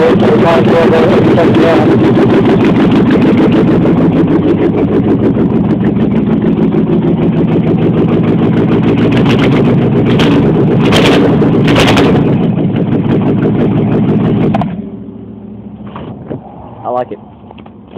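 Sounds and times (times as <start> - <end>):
loud rapping engine exhaust: 0.0 - 15.8.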